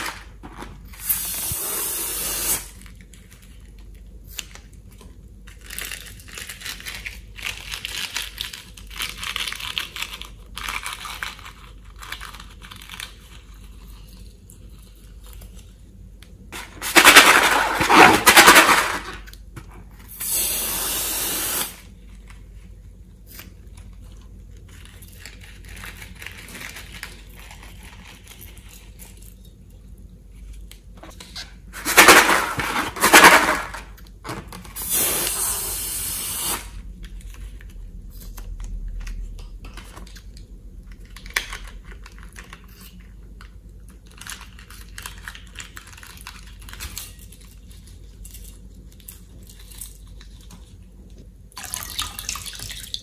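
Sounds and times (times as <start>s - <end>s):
air hissing from balloon: 1.0s - 2.8s, 20.1s - 21.9s, 34.7s - 36.8s.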